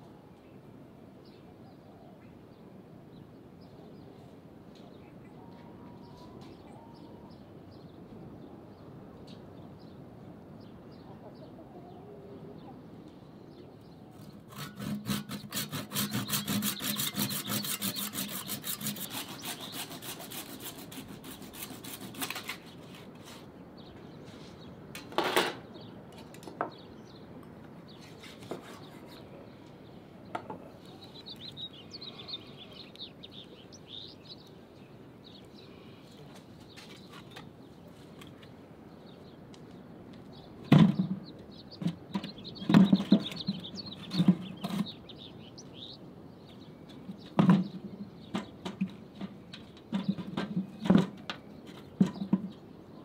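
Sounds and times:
birds chirping: 0:10.6 - 0:53.0
hand saw sawing: 0:14.2 - 0:23.5, 0:28.0 - 0:29.2.

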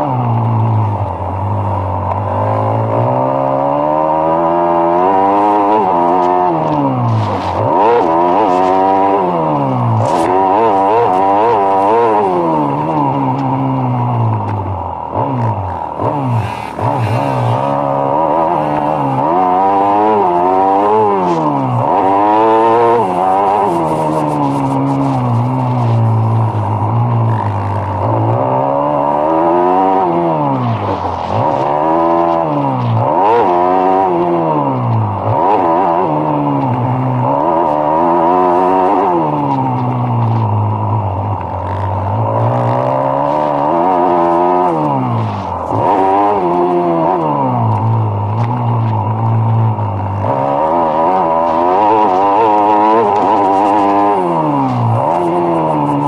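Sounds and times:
motocross engine revving: 0:00.0 - 0:56.0.

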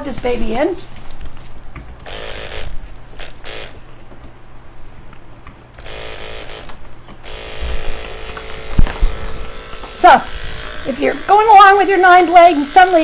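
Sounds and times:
electric clipper buzzing: 0:02.0 - 0:03.8, 0:05.7 - 0:13.0.

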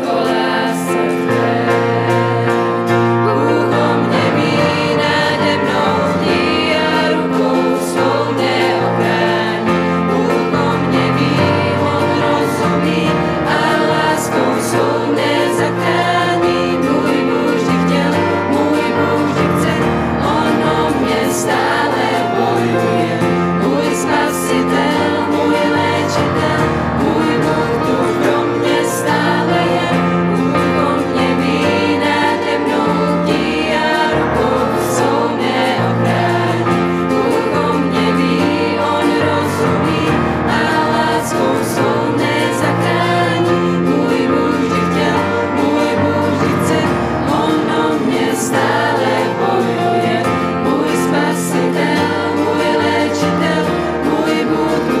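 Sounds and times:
acoustic guitar: 0:00.0 - 0:55.0
keyboard: 0:00.0 - 0:55.0
youth choir singing: 0:00.0 - 0:55.0.

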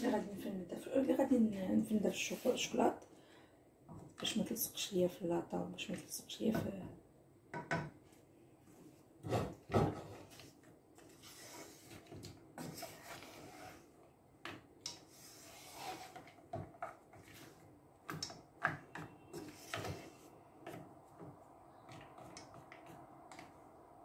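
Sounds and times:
spoon stirring chocolate in pot: 0:11.4 - 0:23.6.

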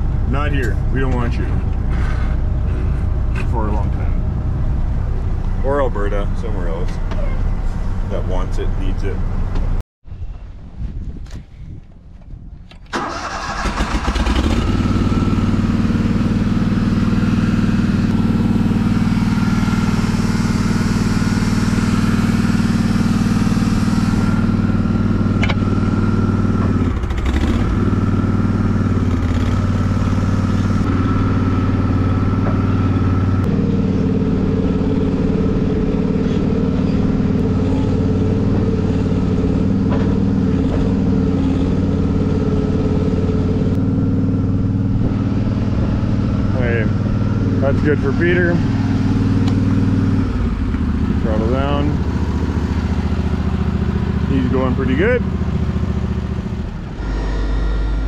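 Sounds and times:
auger engine running: 0:12.7 - 0:58.0.

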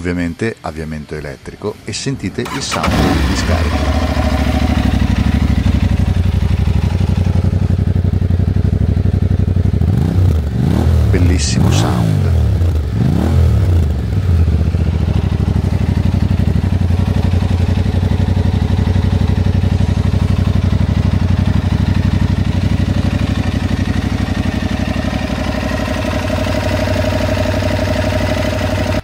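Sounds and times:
motorcycle engine idling: 0:00.0 - 0:29.0.

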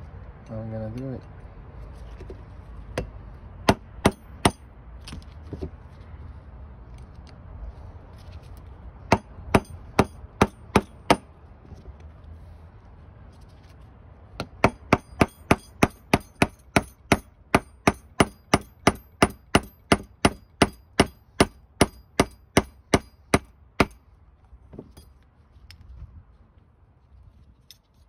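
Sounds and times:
hammer tapping metal punch: 0:09.1 - 0:11.3, 0:14.4 - 0:24.0.

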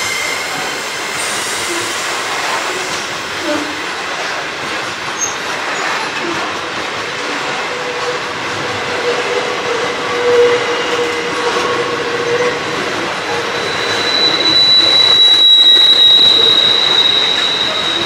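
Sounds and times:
train wagons rumbling: 0:00.0 - 0:18.0
wheel squeal: 0:08.8 - 0:18.0.

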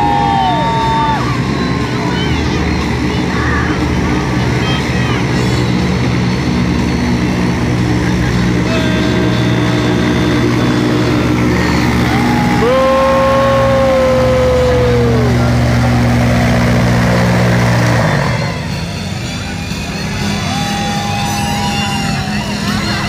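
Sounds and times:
watercraft engines running: 0:00.0 - 0:23.0
high held tone: 0:05.2 - 0:16.0.

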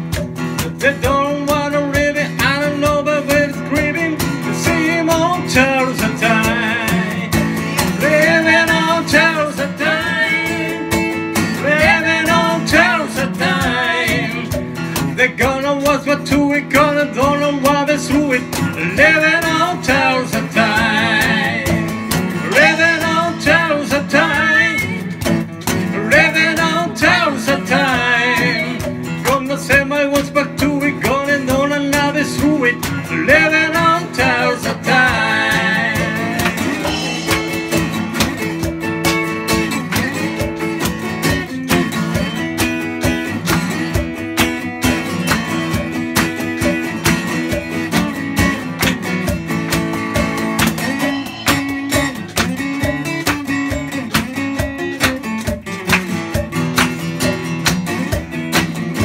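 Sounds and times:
cajon tapping a beat: 0:00.0 - 0:59.0
strummed acoustic guitar: 0:00.0 - 0:59.0
man singing: 0:00.6 - 0:25.2, 0:25.8 - 0:38.0.

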